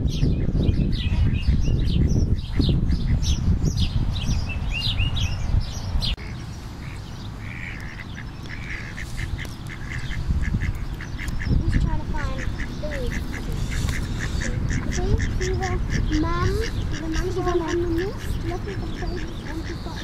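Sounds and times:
small birds chirping: 0.0 - 20.0
waterfowl calling: 6.2 - 20.0.

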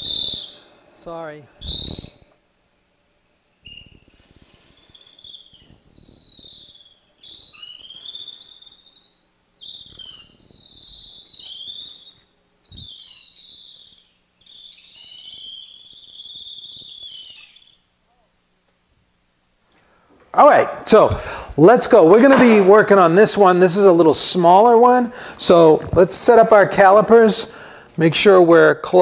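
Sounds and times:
drill press bit squealing in wood: 12.7 - 17.8.

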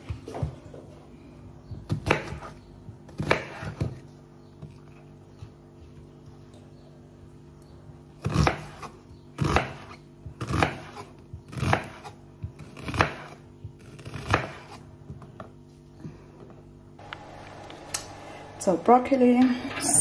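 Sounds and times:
knife chopping on wooden board: 1.8 - 4.0, 8.2 - 15.5.

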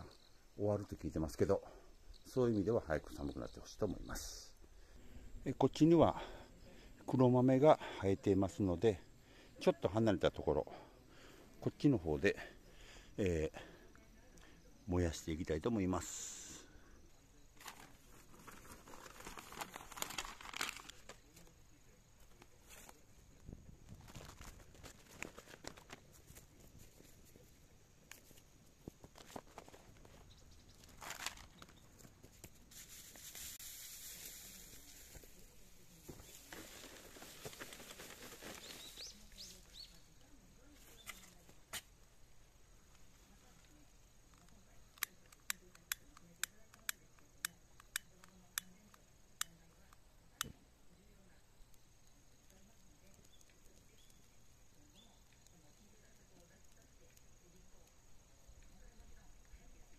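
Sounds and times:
steady hiss: 0.0 - 59.9
paper and cardboard rustling: 17.6 - 21.2, 23.9 - 27.3, 30.8 - 33.5, 36.0 - 39.2.

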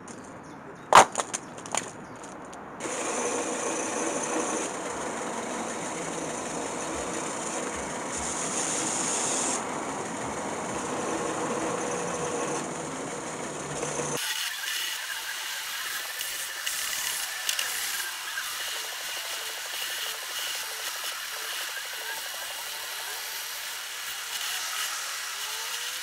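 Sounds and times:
belt sander sanding wood: 2.8 - 26.0.

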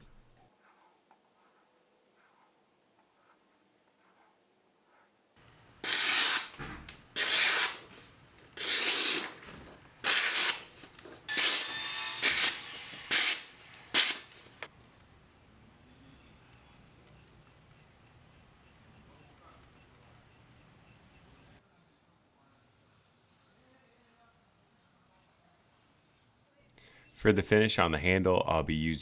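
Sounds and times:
knife slicing paper: 5.8 - 6.6, 7.2 - 7.9, 8.6 - 9.4, 10.0 - 14.4.

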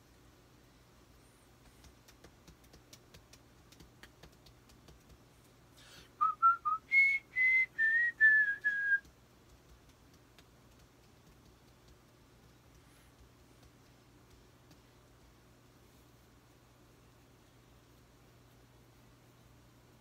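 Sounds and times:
man whistling a tune: 6.2 - 9.0.

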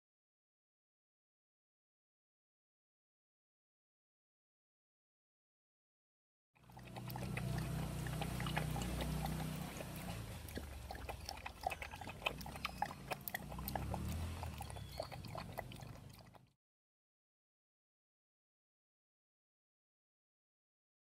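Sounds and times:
dog lapping water: 6.6 - 16.6.

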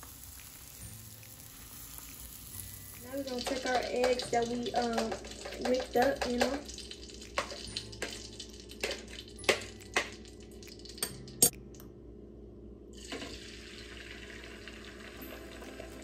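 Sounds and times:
eggs hissing in frying pan: 0.0 - 9.5.

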